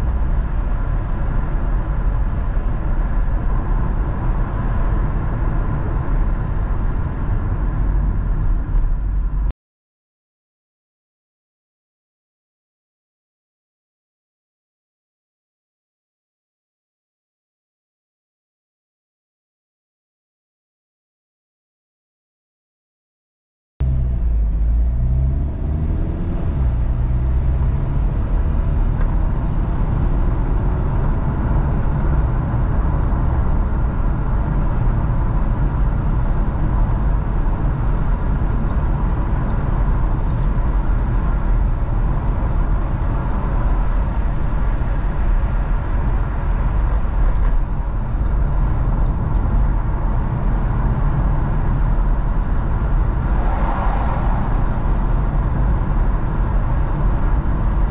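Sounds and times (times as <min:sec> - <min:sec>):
car engine and tyre rumble: 0:00.0 - 0:09.5, 0:23.8 - 0:57.9.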